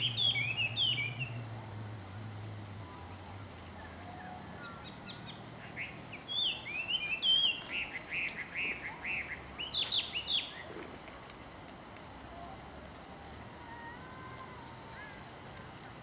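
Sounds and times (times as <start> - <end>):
songbird singing: 0.0 - 11.0, 12.1 - 16.0.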